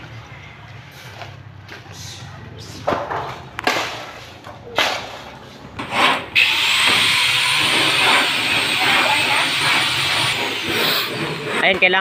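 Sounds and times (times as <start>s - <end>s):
circular saw cutting plywood: 5.8s - 12.0s.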